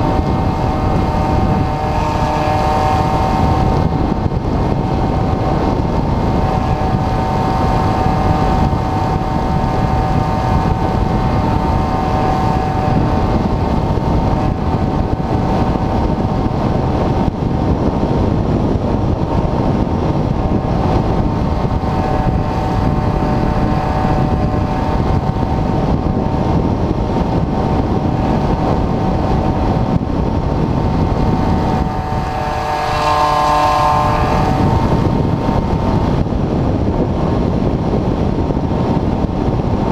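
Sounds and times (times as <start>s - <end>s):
electric motor and propeller whine: 0.0s - 39.9s
wind rushing over camera: 0.0s - 39.9s.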